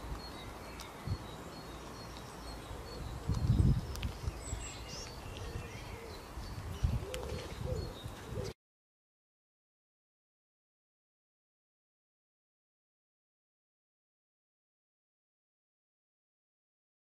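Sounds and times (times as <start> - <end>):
birds singing: 0.0 - 8.6.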